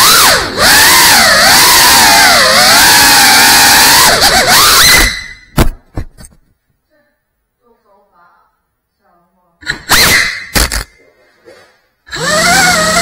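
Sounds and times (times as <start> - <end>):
drone motors whining: 0.0 - 5.4, 12.1 - 13.0.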